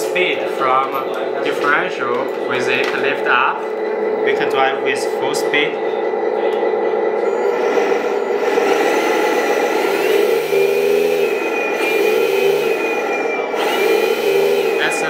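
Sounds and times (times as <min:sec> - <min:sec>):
thin high whine: 0:00.0 - 0:15.0
simulated truck engine revving: 0:03.7 - 0:15.0.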